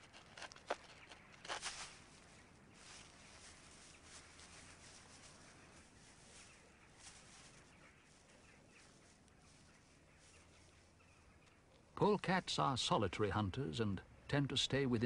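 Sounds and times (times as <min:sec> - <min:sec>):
soft rustles: 0:00.0 - 0:11.6.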